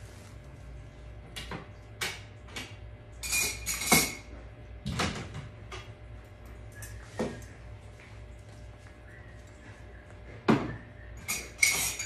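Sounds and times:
steady low hum: 0.0s - 12.0s
clicks and clinks of hard objects: 11.2s - 12.0s.

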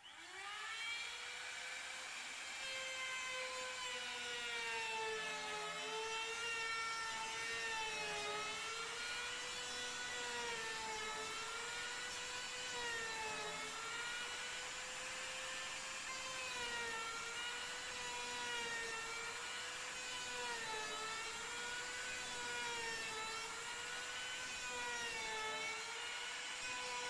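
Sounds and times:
router whining cutting wood: 0.0s - 27.0s.

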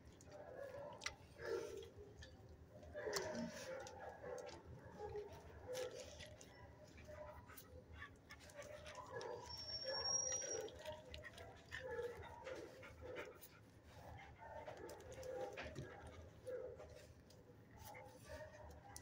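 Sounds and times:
dogs whining: 8.9s - 11.0s.

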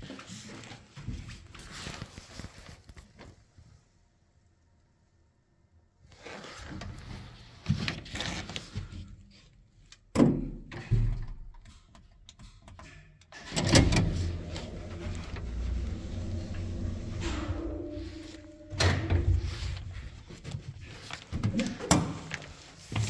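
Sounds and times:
lift machinery humming: 13.5s - 20.4s.

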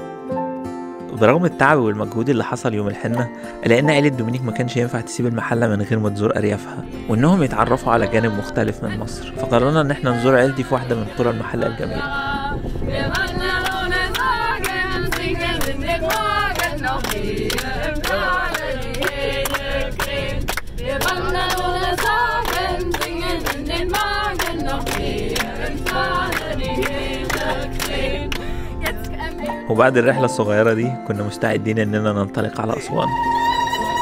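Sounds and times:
group of people singing: 6.7s - 29.7s
people clapping in rhythm: 12.9s - 29.5s.

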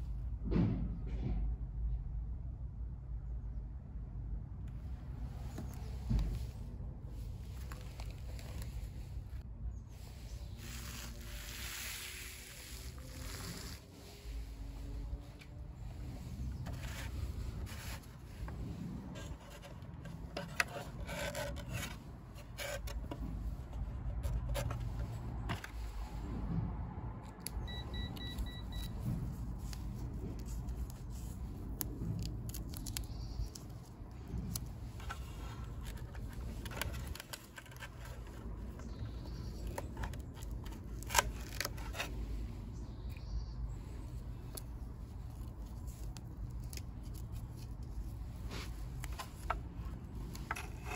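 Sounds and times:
plastic box handling clicks and scrapes: 15.2s - 26.5s, 28.2s - 42.5s, 44.4s - 50.9s.

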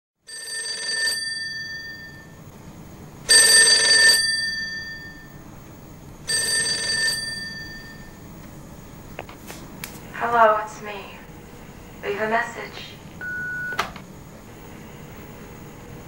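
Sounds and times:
telephone bell ringing: 0.3s - 2.4s, 3.3s - 5.4s, 6.3s - 8.2s, 13.2s - 13.8s.

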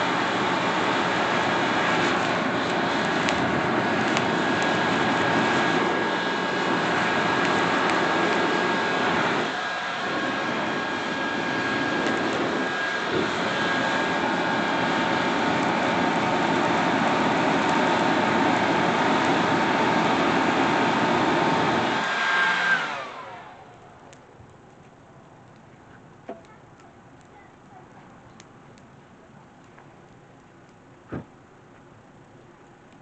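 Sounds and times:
leaf blower rushing air: 0.0s - 23.8s
thin steady whine: 0.0s - 33.0s.

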